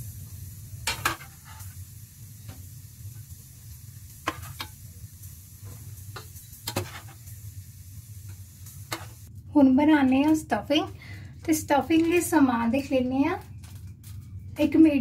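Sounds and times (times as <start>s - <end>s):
peppers sizzling in oil: 0.0s - 9.3s.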